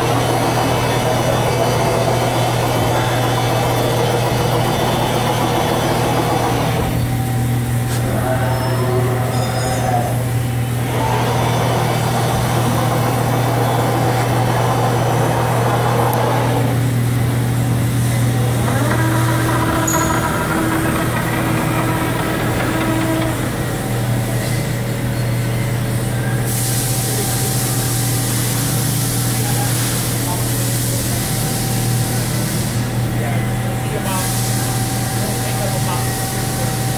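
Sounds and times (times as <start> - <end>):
heavy machinery humming: 0.0 - 36.9
hiss: 26.5 - 33.0, 34.1 - 35.4.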